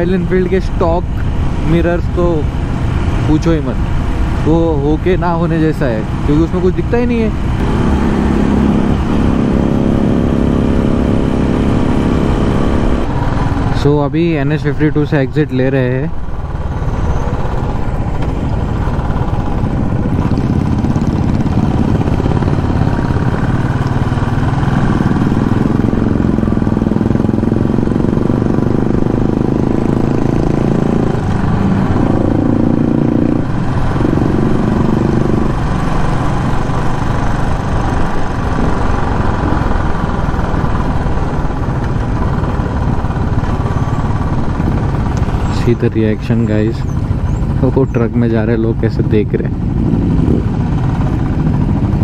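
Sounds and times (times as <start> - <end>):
motorcycle engine cruising: 0.0 - 52.0
wind rushing: 16.2 - 45.5, 49.6 - 52.0.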